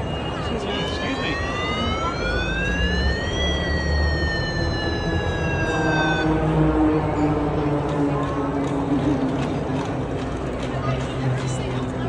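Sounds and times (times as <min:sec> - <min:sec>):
siren wailing: 0:00.0 - 0:07.2.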